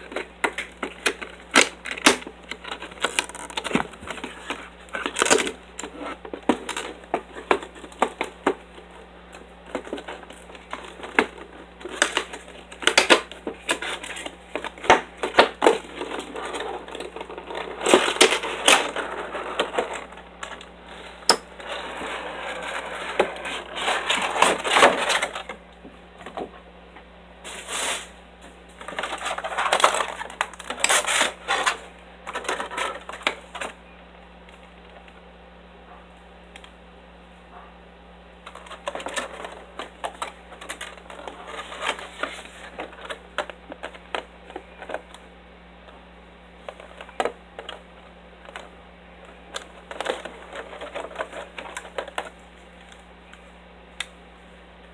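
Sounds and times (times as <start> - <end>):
plastic packaging clicks: 0.0 - 8.9, 9.7 - 19.0
plastic crinkling: 0.0 - 25.6, 27.5 - 33.8, 38.4 - 45.2, 46.6 - 53.5.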